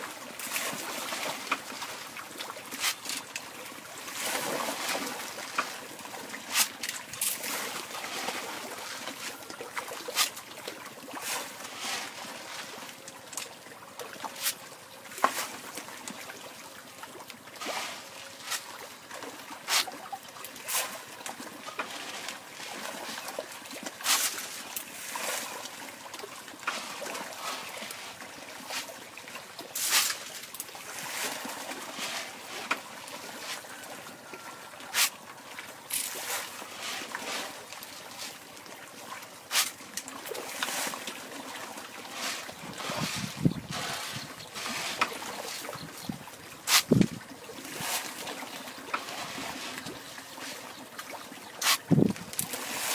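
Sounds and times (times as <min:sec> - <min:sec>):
fish splashing at water surface: 0:00.0 - 0:52.9.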